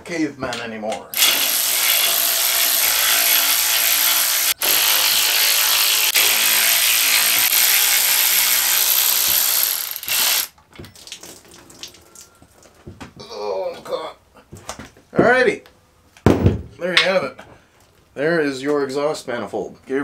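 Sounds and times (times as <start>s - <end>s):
electric ratchet running: 1.1s - 10.5s.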